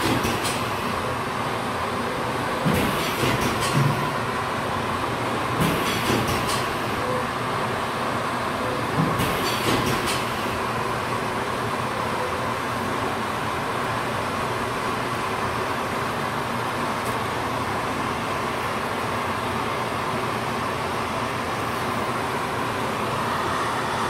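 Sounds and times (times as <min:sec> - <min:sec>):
rattling clicks on roller conveyor: 0:00.0 - 0:00.9, 0:02.6 - 0:04.2, 0:05.6 - 0:06.9, 0:09.0 - 0:10.6
steady blower noise with hum: 0:00.0 - 0:24.0.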